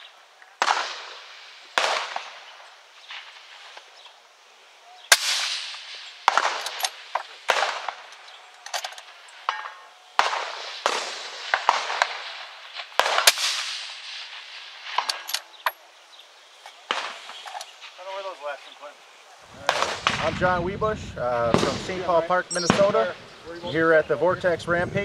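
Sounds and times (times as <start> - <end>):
rifle shots echoing: 0.0 - 4.0, 5.1 - 15.9, 16.8 - 18.6, 19.6 - 20.5, 21.5 - 23.4
metallic clicks of rifle action: 6.6 - 7.3, 8.1 - 9.8, 15.0 - 15.8.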